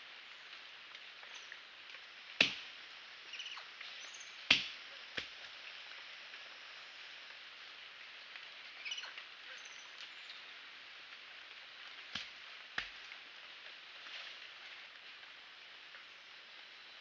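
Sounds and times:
rainforest background hiss: 0.0 - 17.0.

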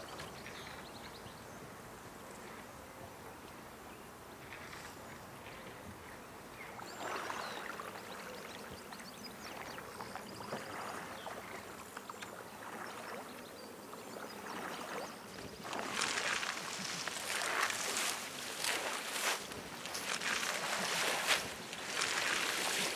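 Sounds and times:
water swishing and trickling: 6.7 - 22.9.

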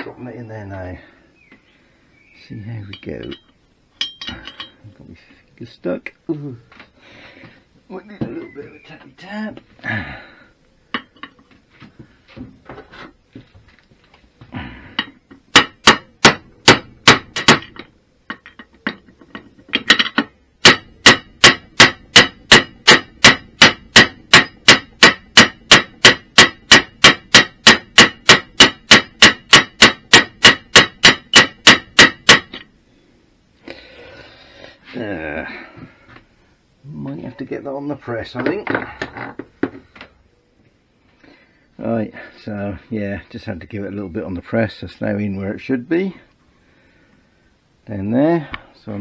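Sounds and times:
hammer striking metal drift: 20.6 - 32.5.

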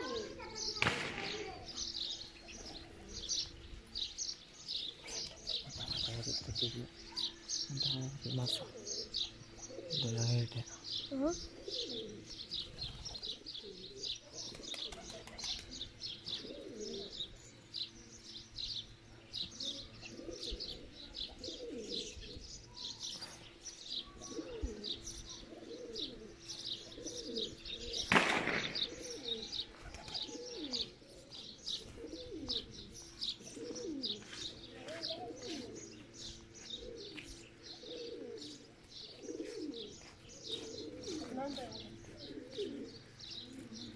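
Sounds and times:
birds chirping: 0.0 - 43.9
pigeons cooing: 0.0 - 43.9
wings flapping: 14.4 - 15.8.

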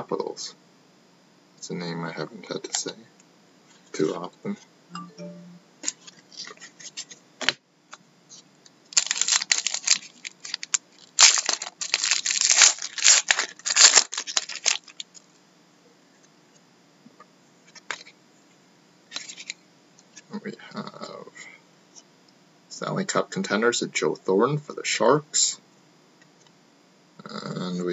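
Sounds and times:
wrapper tearing and crinkling: 8.9 - 15.2.

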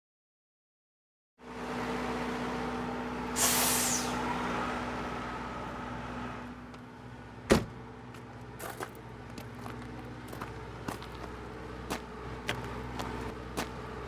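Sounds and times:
vehicle engine idling: 1.4 - 14.0
brief hiss: 3.4 - 4.2
sharp thump: 7.5 - 7.8.

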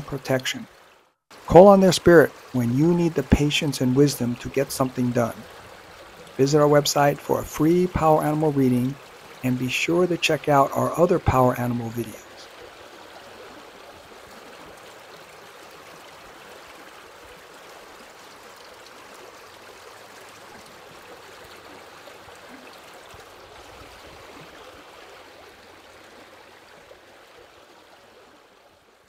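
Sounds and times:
river water flowing: 0.0 - 29.0.

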